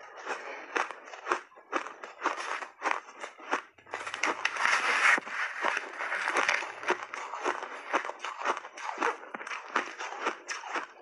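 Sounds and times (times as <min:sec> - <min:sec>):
chewing crunchy shaved ice: 0:00.0 - 0:11.0.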